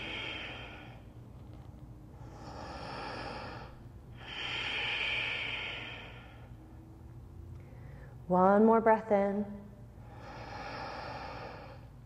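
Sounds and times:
woman breathing deeply: 0.0s - 1.3s, 2.1s - 7.0s, 7.6s - 8.3s, 9.9s - 12.0s.

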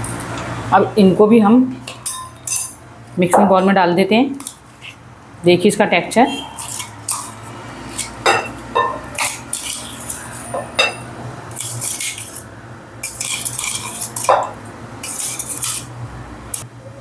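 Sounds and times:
metal spoon scraping steel jar: 6.4s - 15.9s.

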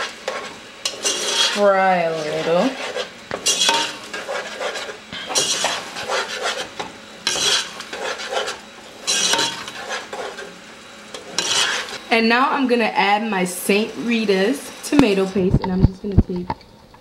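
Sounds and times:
metal spoon scraping a pot: 0.0s - 12.0s
low sizzle: 0.0s - 17.0s.

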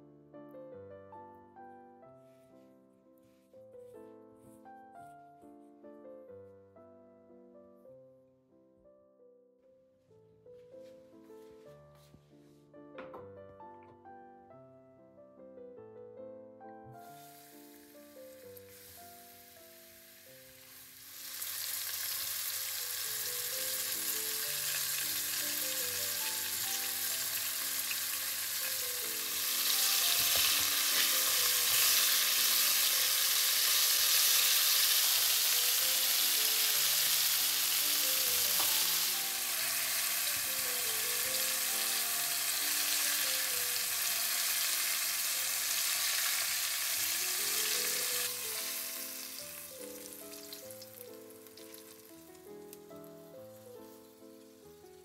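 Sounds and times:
food sizzling in frying pan: 17.0s - 53.1s.

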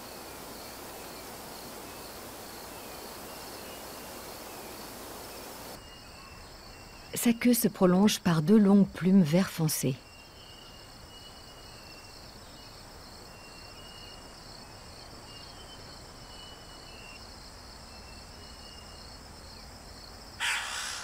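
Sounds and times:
rustling hiss: 0.0s - 5.8s
insect chorus trilling: 0.0s - 7.2s, 10.0s - 21.0s.

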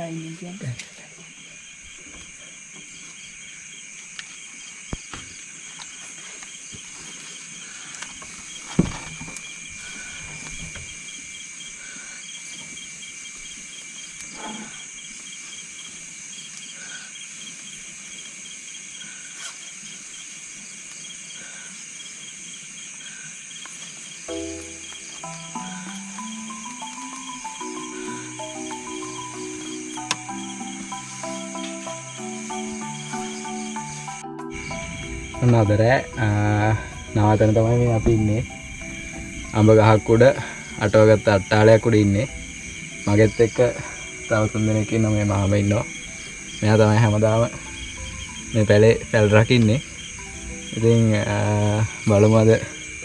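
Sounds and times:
crickets and insects trilling: 0.0s - 53.0s
music: 24.3s - 53.0s.

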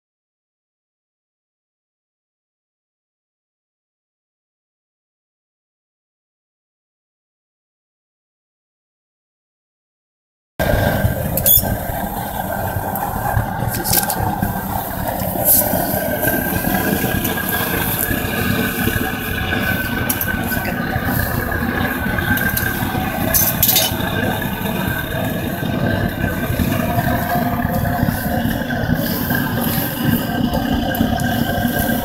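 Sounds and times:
furnace burner roaring: 10.6s - 32.0s
tongs clinking on metal lid: 23.4s - 24.0s.

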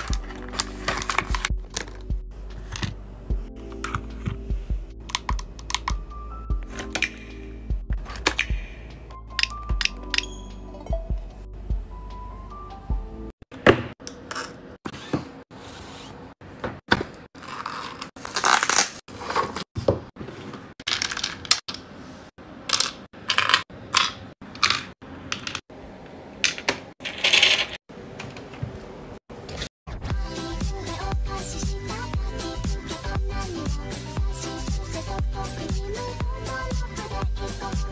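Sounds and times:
plastic pieces clattering: 0.0s - 2.0s, 20.8s - 21.8s, 22.7s - 25.6s, 26.5s - 27.8s.

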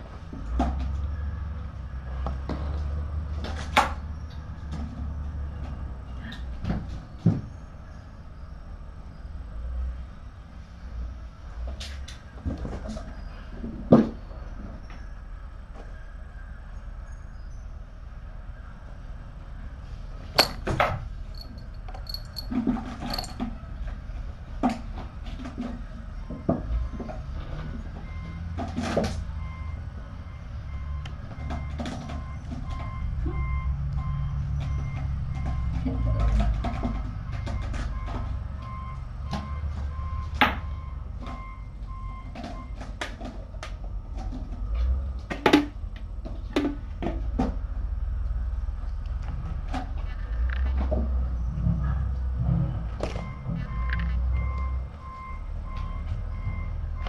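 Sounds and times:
kittens playing with rattling toys: 20.4s - 23.6s.

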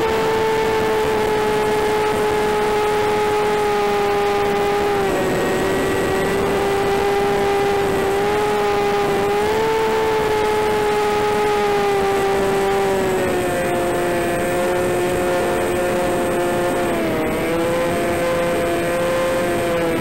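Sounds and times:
electric motor and propeller whine: 0.0s - 20.0s.

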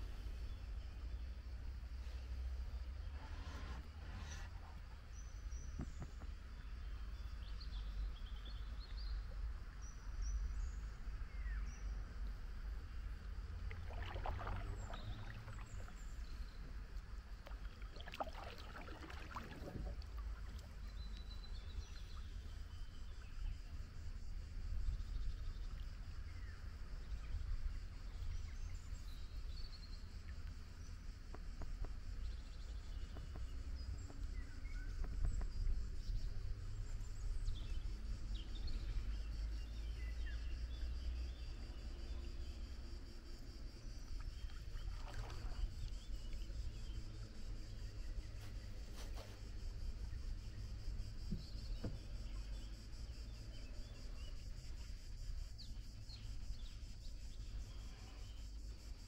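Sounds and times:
paddles swishing through water: 12.2s - 23.9s, 43.9s - 53.1s.

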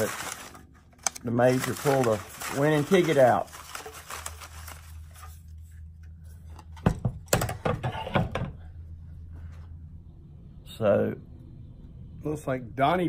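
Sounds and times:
low hum: 8.5s - 13.0s.

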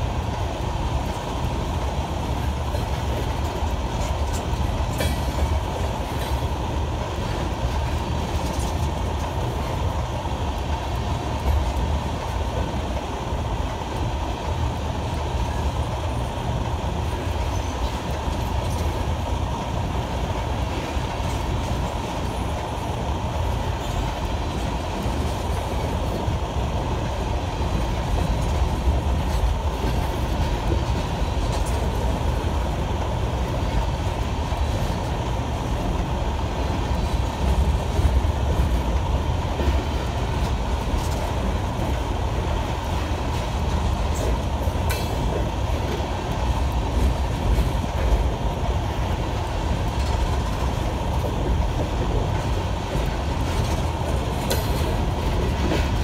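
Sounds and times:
train wheels rumbling on rails: 0.0s - 56.0s
sharp rail clicks: 2.3s - 15.7s, 20.1s - 56.0s.

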